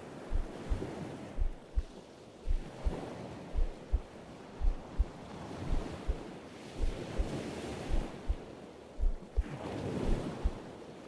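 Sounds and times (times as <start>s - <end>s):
distant surf: 0.0s - 11.0s
wind: 0.0s - 11.0s
heartbeat: 0.3s - 1.9s, 2.5s - 6.2s, 6.8s - 8.4s, 9.0s - 10.6s.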